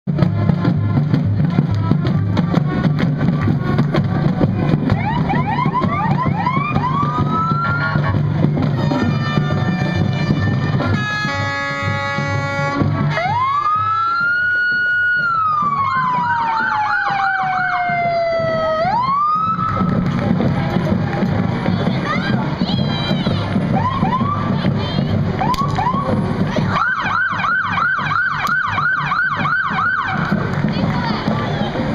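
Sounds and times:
music with low beat: 0.1 - 26.8
emergency vehicle sirens: 0.4 - 31.9
vehicle horn blast: 8.8 - 13.4.

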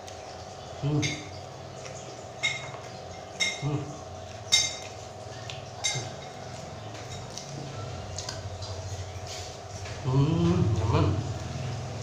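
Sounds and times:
tableware clinks: 3.4 - 3.7.

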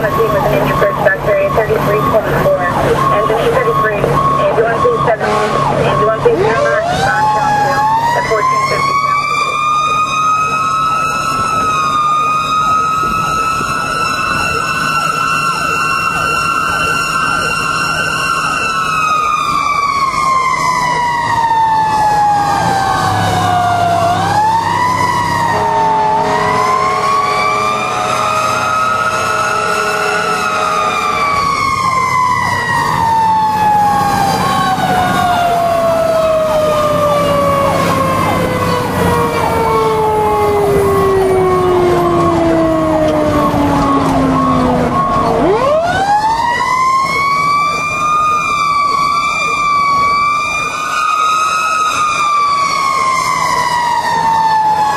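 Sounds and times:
fire engine siren: 0.0 - 54.9
air horn chord: 5.2 - 5.7, 25.6 - 31.2.

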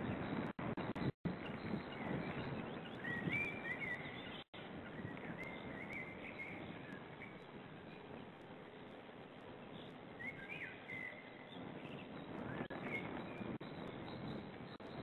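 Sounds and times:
woodland ambience hiss: 1.4 - 15.0.

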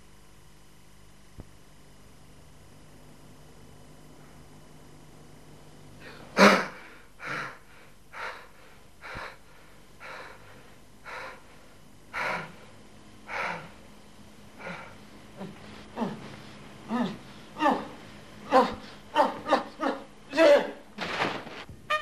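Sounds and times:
man breathing heavily: 6.0 - 19.9
short moans: 14.6 - 20.8.

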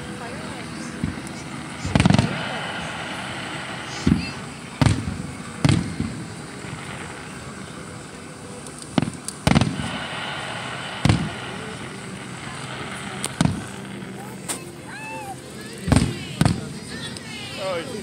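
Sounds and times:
fireworks booming: 0.0 - 15.0, 15.7 - 17.0.

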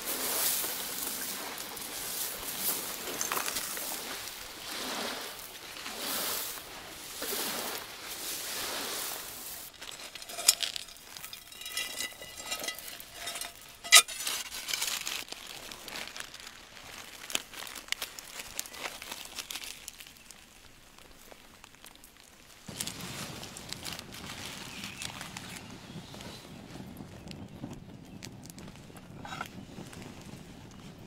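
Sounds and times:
spatula scraping gravel: 0.0 - 16.6
wet leaves crinkling: 0.0 - 26.3
metal clinking on stone: 9.7 - 15.1.

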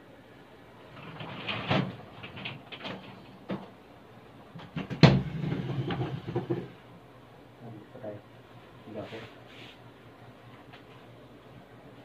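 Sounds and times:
objects knocking: 4.6 - 6.8.

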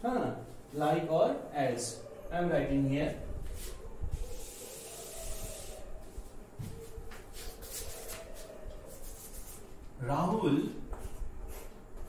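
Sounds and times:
duster rubbing on chalkboard: 3.4 - 9.9
chalk writing on board: 7.4 - 9.7.

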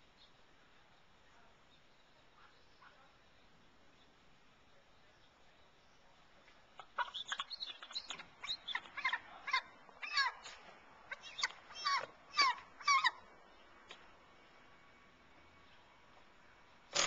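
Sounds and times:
eagle chirping: 6.7 - 14.1.

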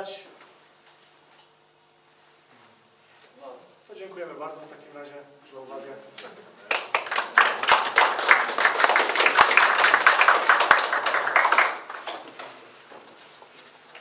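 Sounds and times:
audience applauding: 6.7 - 12.4.

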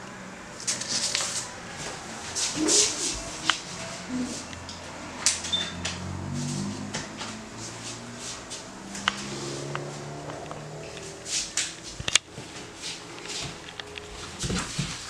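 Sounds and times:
paper rustling: 0.6 - 4.4.

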